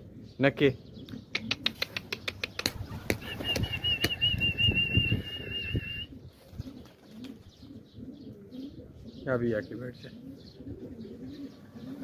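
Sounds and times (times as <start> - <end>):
pigeon wings flapping: 1.6 - 5.8
warbling high whistle: 3.4 - 6.1.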